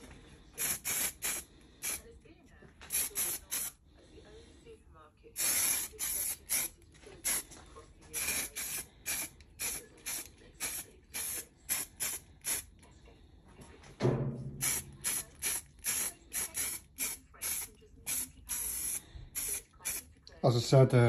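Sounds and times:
spray-paint can hissing: 0:00.6 - 0:02.0, 0:02.9 - 0:03.8, 0:05.4 - 0:07.4, 0:08.2 - 0:12.7, 0:14.6 - 0:20.0
brief low thump: 0:14.0 - 0:14.6.

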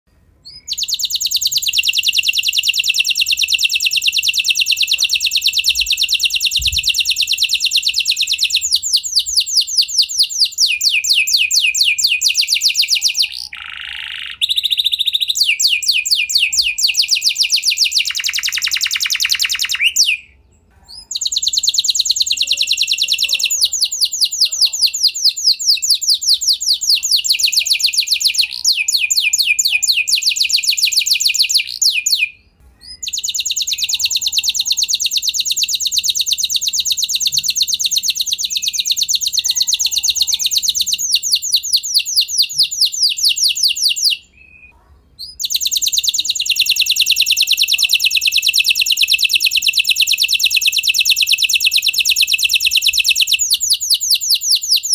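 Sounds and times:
canary singing trills: 0:00.4 - 0:54.9.

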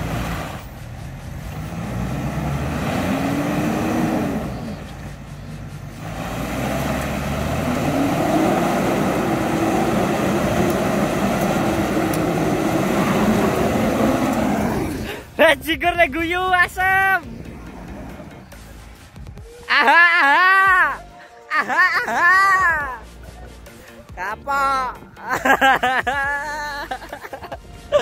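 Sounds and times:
engine revving hard: 0:00.0 - 0:15.3, 0:17.2 - 0:18.8.

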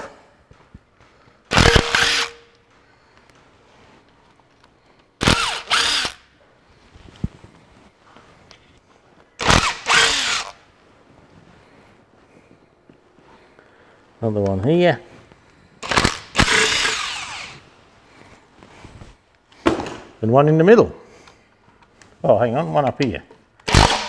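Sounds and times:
impact driver hammering bolts: 0:01.5 - 0:02.6, 0:05.2 - 0:06.2, 0:15.8 - 0:17.5, 0:23.6 - 0:24.0.

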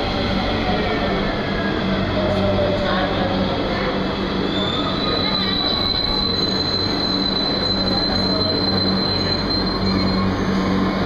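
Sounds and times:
high-pitched brake squeal: 0:04.3 - 0:11.0.

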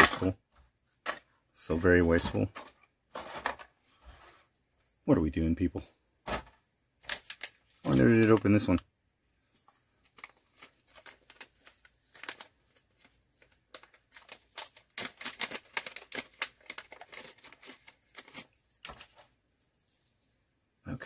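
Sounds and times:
plastic bag crinkling and tearing: 0:07.0 - 0:08.6, 0:10.0 - 0:19.2.

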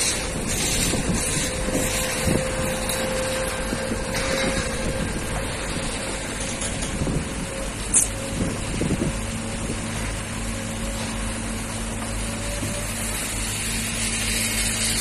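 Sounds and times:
crane engine rumbling with whine: 0:00.0 - 0:15.0.

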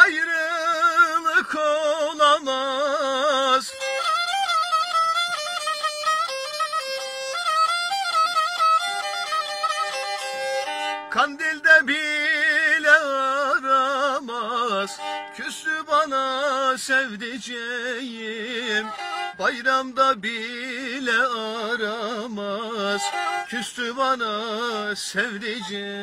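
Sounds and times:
bowed fiddle solo: 0:02.8 - 0:11.2, 0:14.6 - 0:15.6, 0:17.8 - 0:19.7, 0:22.0 - 0:26.0.

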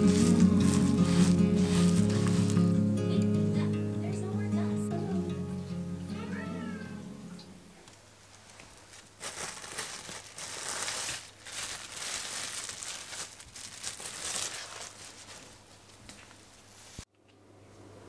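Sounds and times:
cling film crinkling: 0:00.0 - 0:02.9, 0:08.2 - 0:17.0
cat meowing: 0:06.1 - 0:07.4.

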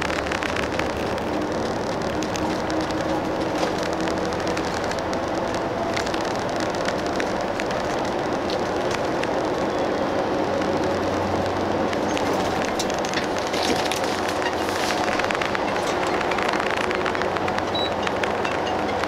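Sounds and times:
bus engine and road drone: 0:00.0 - 0:19.0
small rattles and clicks: 0:00.0 - 0:19.0.

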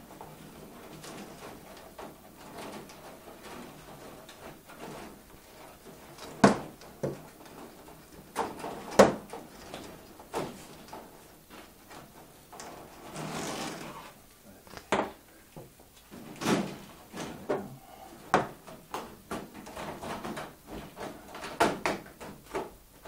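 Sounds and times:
sharp knocks and clacks: 0:00.0 - 0:12.9
rustling and handling noise: 0:00.0 - 0:23.0.

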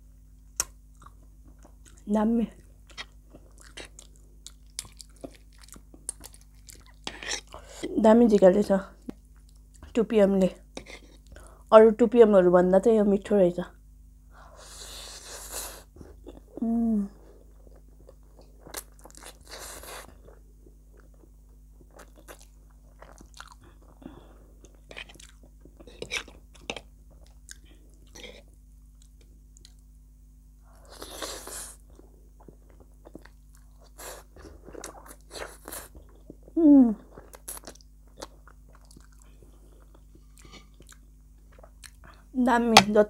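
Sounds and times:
faint low hum: 0:00.0 - 0:43.0
wet chewing and lip-smacking: 0:00.6 - 0:07.6, 0:37.1 - 0:42.3.

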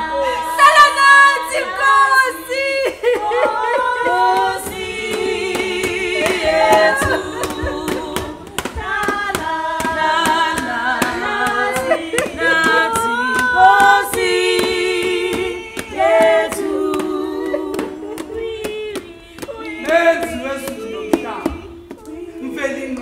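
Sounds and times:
group singing in harmony: 0:00.0 - 0:23.0.

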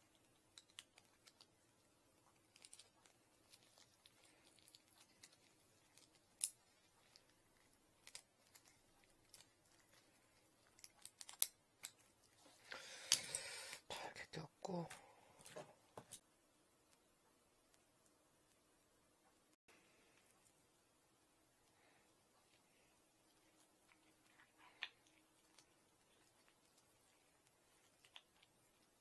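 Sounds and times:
rustling: 0:00.0 - 0:13.9, 0:14.9 - 0:29.0
small metal parts clicking: 0:00.1 - 0:01.5, 0:02.5 - 0:07.3, 0:10.7 - 0:12.0.

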